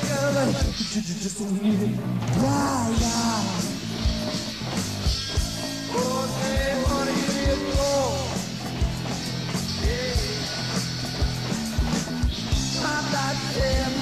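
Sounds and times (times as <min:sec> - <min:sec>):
electric guitars: 0:00.0 - 0:14.0
fretless bass: 0:01.6 - 0:14.0
drum beat: 0:02.3 - 0:14.0
pitch-bending melody line: 0:05.5 - 0:08.4.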